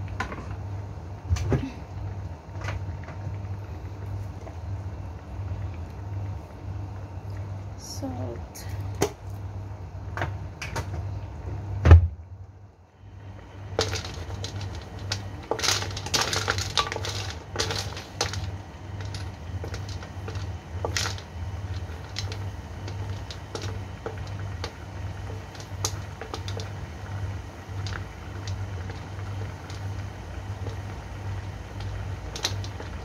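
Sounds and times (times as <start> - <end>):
shells clattering in a steel wok: 13.8 - 21.2.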